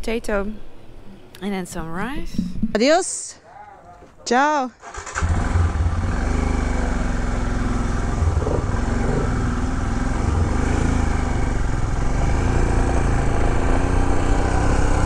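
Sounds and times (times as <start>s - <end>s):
motorcycle pulling away: 4.8s - 15.0s.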